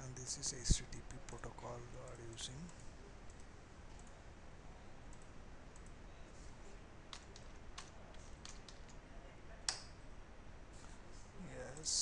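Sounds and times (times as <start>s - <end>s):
faint steady hiss: 0.0s - 12.0s
computer keyboard clicks: 7.1s - 9.0s.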